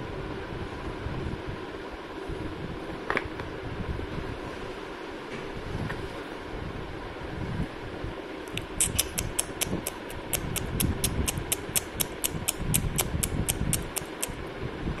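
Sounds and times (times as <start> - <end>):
high-pitched clicks: 8.5 - 14.4.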